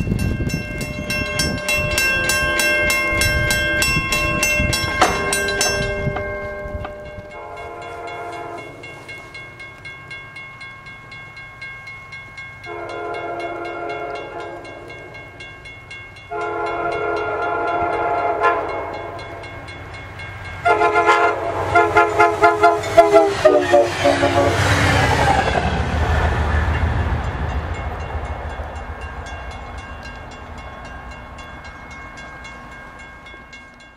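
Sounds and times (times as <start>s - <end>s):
train rumble: 0.0s - 33.9s
train horn blasts: 1.2s - 9.3s, 12.6s - 15.1s, 16.3s - 19.4s, 20.6s - 25.0s.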